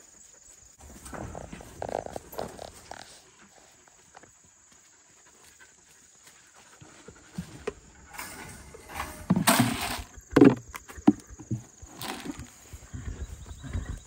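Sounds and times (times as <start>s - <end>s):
grain feed rustling and pouring: 8.1s - 10.1s.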